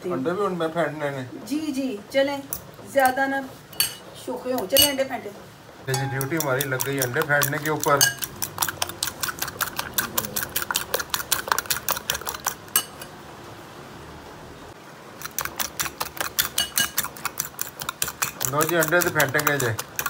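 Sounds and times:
fork clinking against glass bowl: 0:03.8 - 0:04.0, 0:05.9 - 0:11.3, 0:11.9 - 0:13.1, 0:16.2 - 0:20.0.

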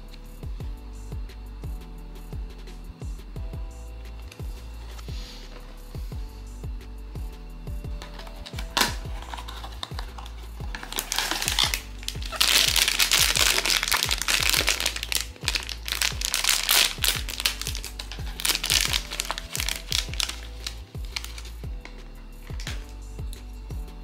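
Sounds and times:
background music with beat: 0:00.0 - 0:24.0
foil bag crinkling: 0:08.0 - 0:21.6, 0:22.5 - 0:22.9.

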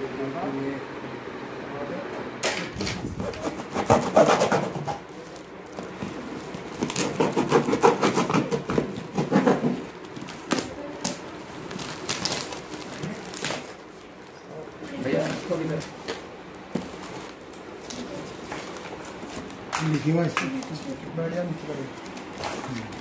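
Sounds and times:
knife cutting tape and cardboard: 0:02.8 - 0:05.0, 0:06.7 - 0:11.2.

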